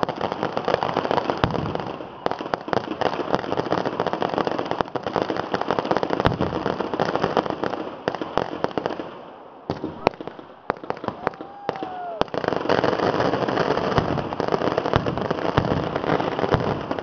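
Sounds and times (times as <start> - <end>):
firecrackers crackling: 0.0 - 17.0
firecracker bangs: 0.8 - 3.4, 9.7 - 17.0.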